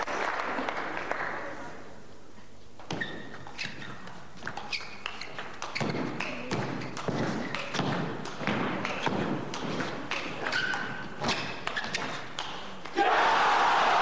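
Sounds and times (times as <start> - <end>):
crowd applause: 0.0 - 1.8, 13.0 - 14.0
table tennis ball clicks: 2.8 - 13.0
short high squeaks: 2.9 - 6.1.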